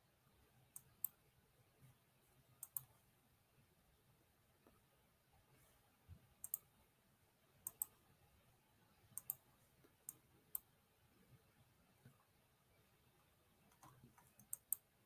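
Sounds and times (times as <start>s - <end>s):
computer mouse clicking: 0.7s - 1.2s, 2.6s - 2.9s, 6.4s - 6.7s, 7.6s - 8.0s, 9.2s - 9.4s, 13.7s - 14.9s.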